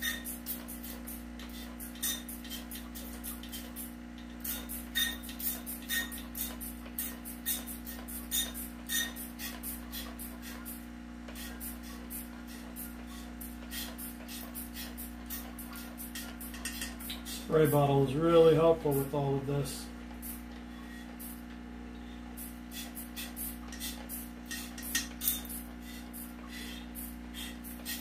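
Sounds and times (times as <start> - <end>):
steady low hum: 0.0 - 28.0
spray bottle hissing: 20.2 - 21.4, 22.4 - 28.0.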